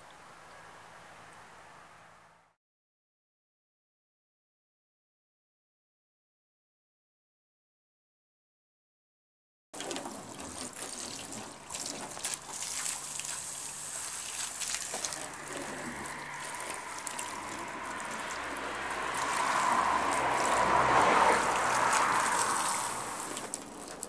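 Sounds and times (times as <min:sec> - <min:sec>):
water from hose pouring onto car: 0:09.8 - 0:24.0.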